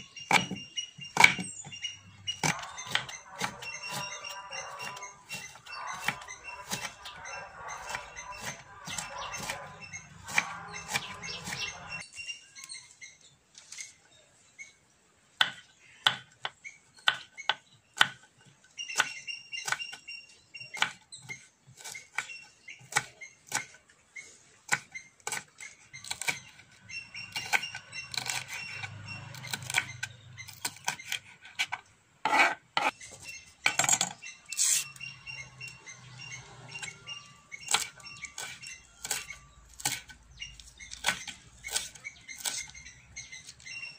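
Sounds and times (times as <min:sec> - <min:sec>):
knife chopping on wooden board: 0:00.3 - 0:01.5, 0:02.4 - 0:04.2, 0:07.8 - 0:09.7, 0:15.4 - 0:18.3.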